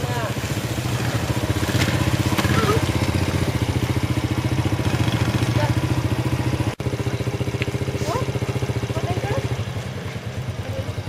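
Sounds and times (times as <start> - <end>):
scooter engine running: 0.0 - 11.0.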